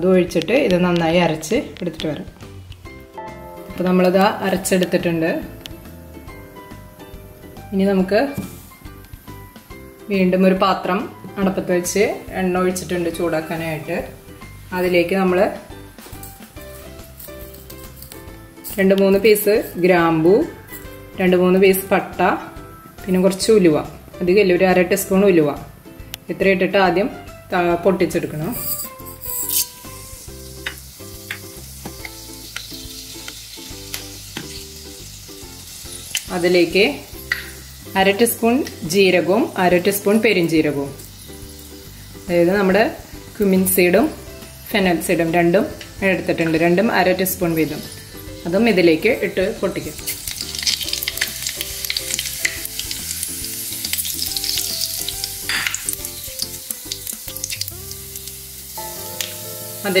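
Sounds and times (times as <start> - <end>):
soft background music: 0.0 - 60.0
spices sizzling in oil: 0.0 - 60.0
spices popping: 0.2 - 22.2, 28.0 - 60.0
seeds popping: 50.1 - 57.8.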